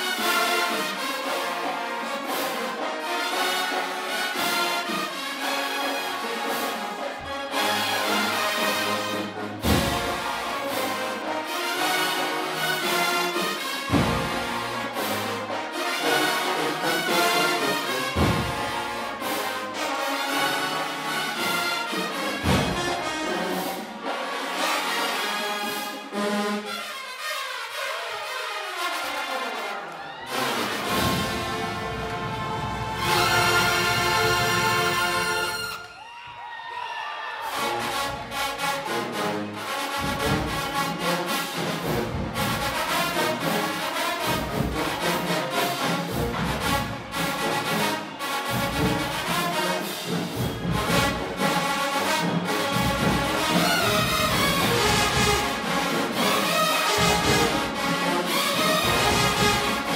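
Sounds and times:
marching band brass music: 0:00.0 - 0:36.2, 0:37.1 - 0:59.9
drum hit: 0:09.6 - 0:10.3, 0:13.9 - 0:14.6, 0:18.2 - 0:18.8, 0:22.4 - 0:23.0.

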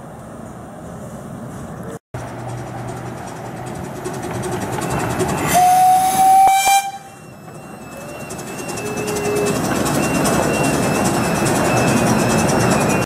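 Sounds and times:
train running: 0:00.0 - 0:13.0
steam hissing: 0:03.4 - 0:13.0
steam locomotive whistle: 0:05.4 - 0:09.7.

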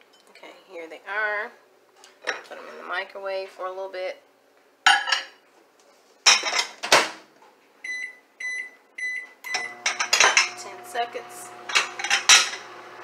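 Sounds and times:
microwave humming: 0:07.9 - 0:13.0.

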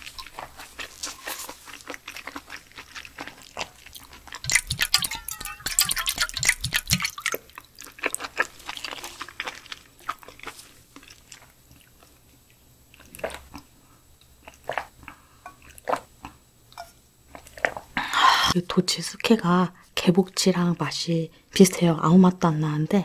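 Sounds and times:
chewing: 0:00.0 - 0:17.9
sipping and gulping: 0:02.4 - 0:12.1
liquid pouring into a brass bowl: 0:04.5 - 0:07.7.

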